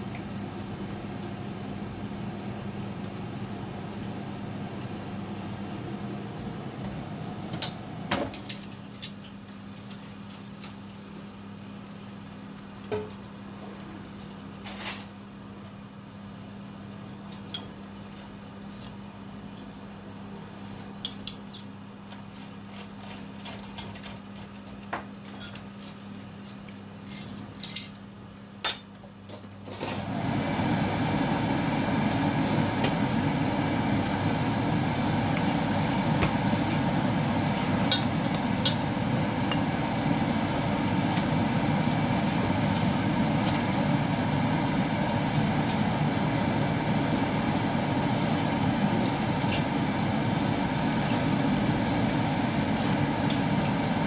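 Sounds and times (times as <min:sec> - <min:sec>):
steady low hum: 0:30.1 - 0:54.0.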